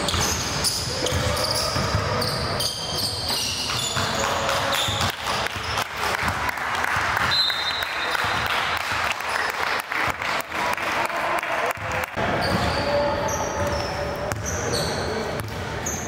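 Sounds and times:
basketball bouncing on gym floor: 0:00.1 - 0:07.4
people talking: 0:10.8 - 0:16.0.

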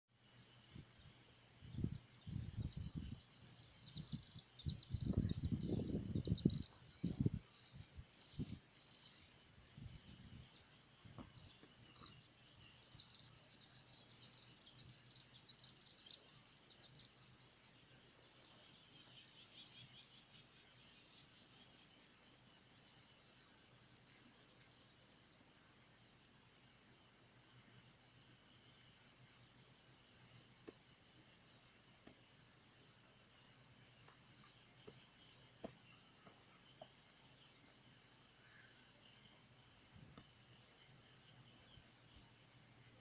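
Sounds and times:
small birds chirping: 0:00.1 - 0:43.0.

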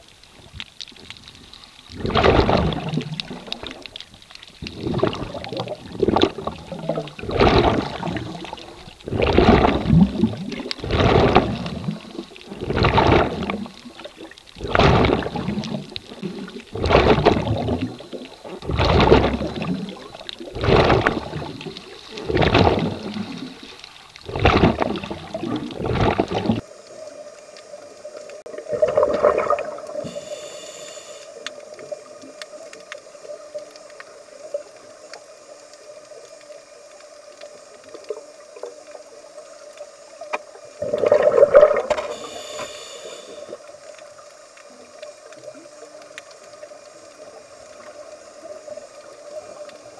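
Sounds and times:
bubbles bursting: 0:01.9 - 0:04.0, 0:04.6 - 0:26.6, 0:28.6 - 0:30.1, 0:40.8 - 0:42.2
regulator breathing underwater: 0:29.9 - 0:31.4, 0:40.8 - 0:43.6.

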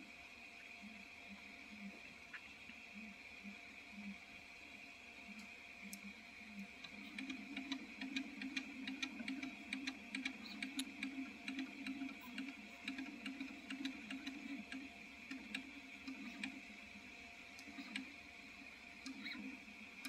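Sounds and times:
print head ticking: 0:06.8 - 0:16.8.

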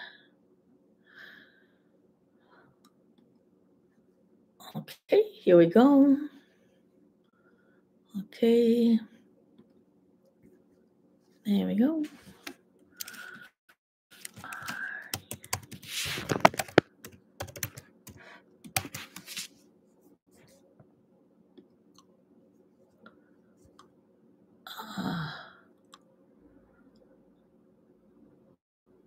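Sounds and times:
faint steady hum: 0:00.0 - 0:13.5, 0:14.2 - 0:29.0
typing on computer keyboard: 0:14.2 - 0:19.3.

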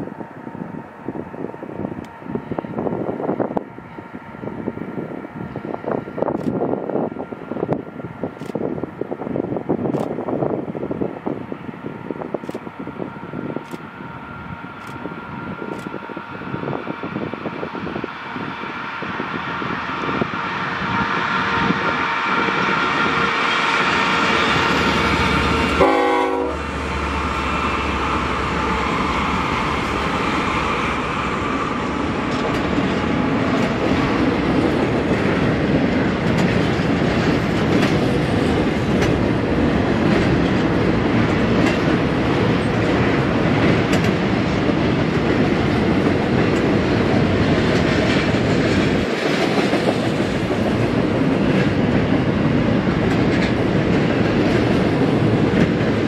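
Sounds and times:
train wheels rumbling on rail: 0:00.0 - 0:56.0
clickety-clack of train trucks: 0:21.4 - 0:56.0.

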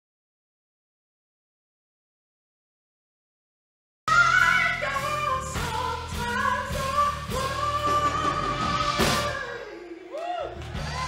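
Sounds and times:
keyboard and band accompaniment: 0:04.1 - 0:09.8.

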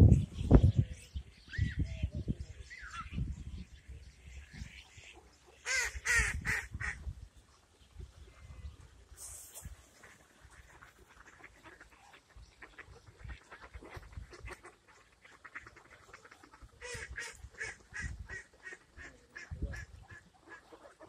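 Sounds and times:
ducks quacking: 0:04.2 - 0:07.2, 0:09.9 - 0:21.0.

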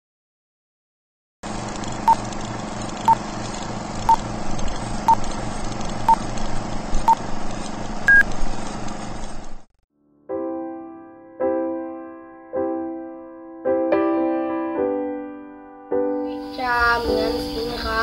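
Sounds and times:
steady hiss with low rattle: 0:16.3 - 0:18.0.

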